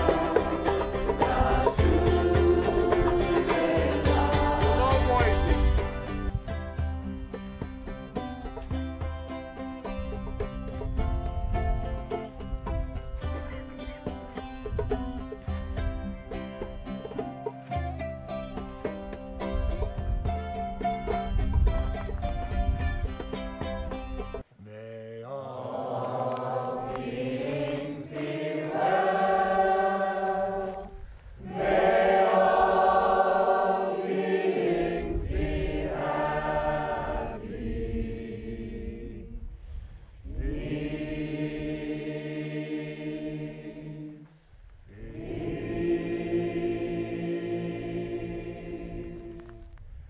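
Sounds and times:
group of voices chanting: 0:24.7 - 0:39.3, 0:44.9 - 0:49.4.

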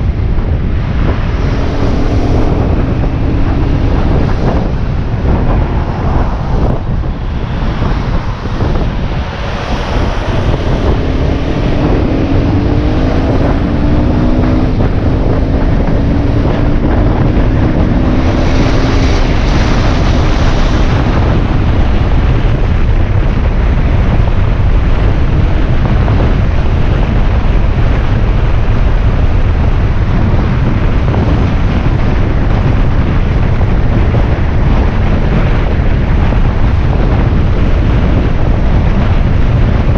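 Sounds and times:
motorbike engine revving: 0:00.0 - 0:29.0
wind rushing over microphone: 0:00.0 - 0:39.9.

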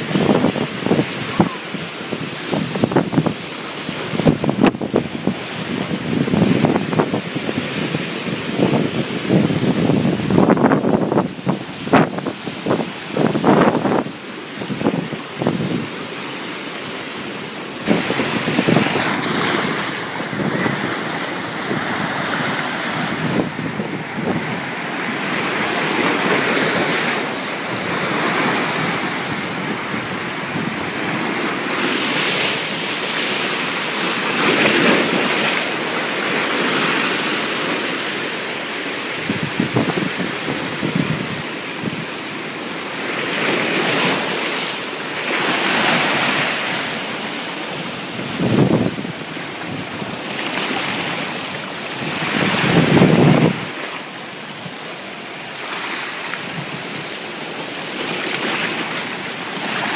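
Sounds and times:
wind buffeting microphone: 0:00.0 - 0:16.1, 0:17.8 - 0:33.2, 0:39.1 - 0:42.2, 0:45.4 - 0:55.0
ocean waves breaking: 0:00.0 - 0:59.9.

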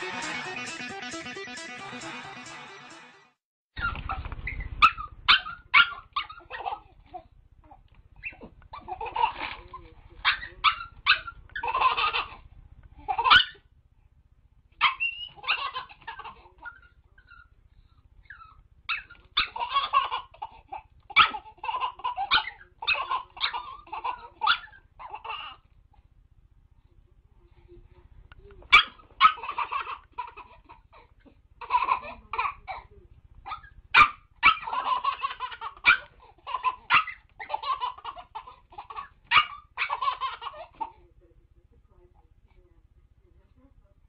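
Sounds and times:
small dog yipping and barking: 0:03.8 - 0:07.3, 0:08.2 - 0:09.1, 0:10.2 - 0:12.4, 0:13.1 - 0:13.7, 0:14.8 - 0:17.6, 0:18.2 - 0:20.4, 0:21.1 - 0:25.6, 0:28.6 - 0:30.5, 0:33.4 - 0:40.8
baby laughing: 0:06.2 - 0:07.3, 0:08.2 - 0:13.6, 0:15.0 - 0:17.4, 0:18.9 - 0:25.7, 0:28.6 - 0:32.9, 0:33.5 - 0:41.0.

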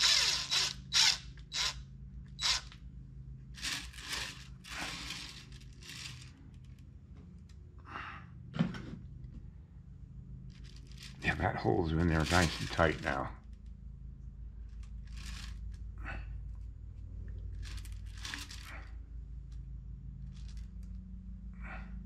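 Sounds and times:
cordless drill driving screw: 0:00.0 - 0:01.8, 0:02.4 - 0:02.8, 0:03.6 - 0:06.2.

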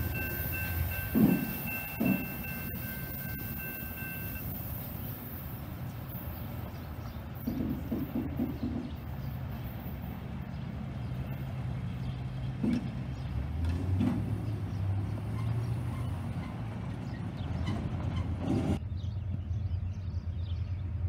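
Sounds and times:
tyres thumping over rails: 0:00.1 - 0:03.0, 0:12.5 - 0:18.8.

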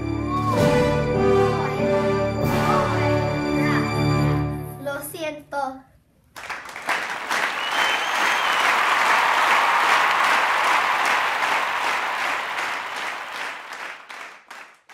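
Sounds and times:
applause: 0:06.3 - 0:14.9.

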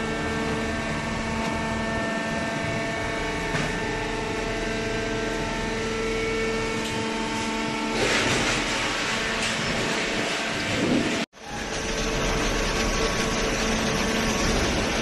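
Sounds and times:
baler machine hum: 0:00.0 - 0:15.0.

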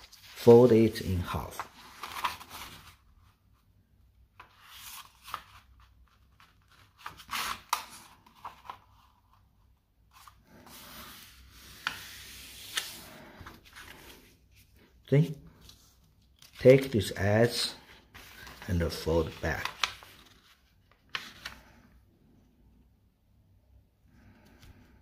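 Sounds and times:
paper rustling and sliding: 0:00.0 - 0:03.6, 0:10.1 - 0:14.9, 0:15.5 - 0:21.9.

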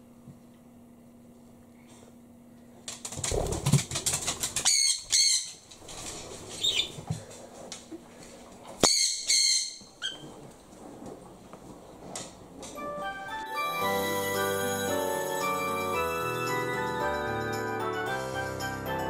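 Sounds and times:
parrot screeching: 0:04.7 - 0:05.5, 0:08.8 - 0:10.2.

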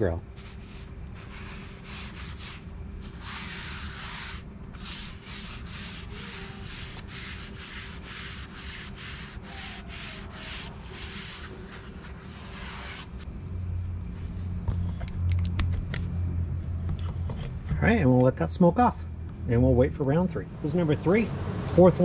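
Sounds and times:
paper towel scrubbing hot griddle: 0:00.4 - 0:13.2.

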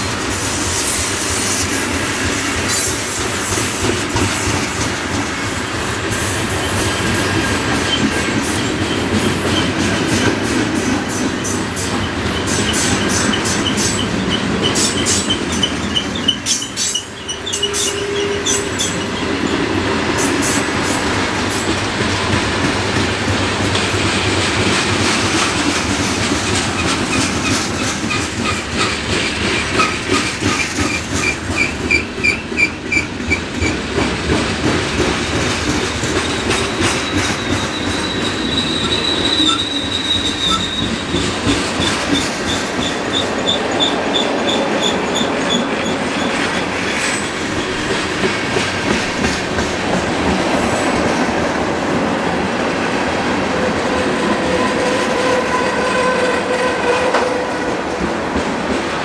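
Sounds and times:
train wheels squealing on rails: 0:00.0 - 0:51.4, 0:53.6 - 0:59.0
clickety-clack of wheels: 0:00.0 - 0:52.7, 0:53.5 - 0:59.0
train rumble: 0:00.0 - 0:59.0.

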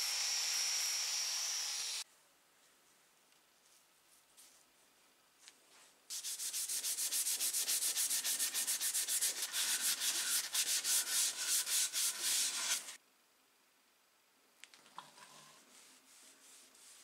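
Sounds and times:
abrasive pad scrubbing wood: 0:06.1 - 0:13.0.

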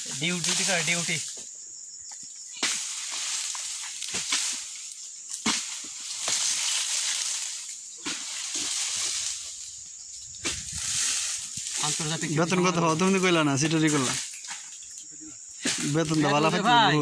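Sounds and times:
frond cracking underfoot: 0:02.5 - 0:16.4
footsteps crunching through dry fronds: 0:02.6 - 0:14.9.

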